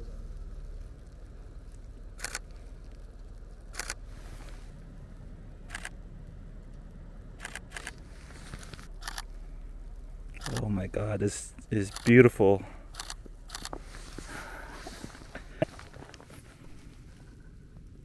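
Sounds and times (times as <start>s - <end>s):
camera shutter clicks: 2.2s - 2.4s, 3.7s - 4.0s, 5.7s - 6.0s, 7.4s - 8.0s, 8.8s - 9.3s, 10.4s - 10.6s, 11.9s - 12.1s, 12.9s - 13.7s.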